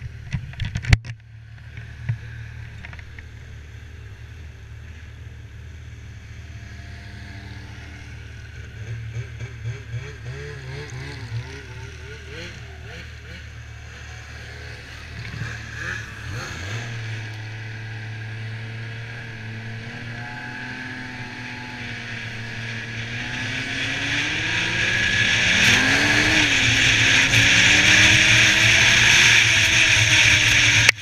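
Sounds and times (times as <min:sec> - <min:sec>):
snowmobile engine running: 0:07.4 - 0:31.0.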